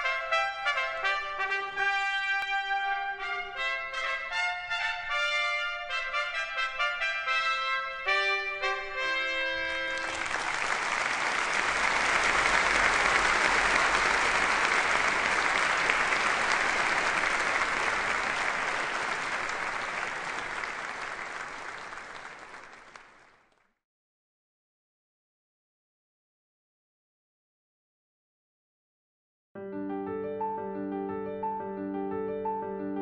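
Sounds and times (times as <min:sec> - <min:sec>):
brass fanfare: 0:00.0 - 0:22.7
audience applauding: 0:09.7 - 0:23.7.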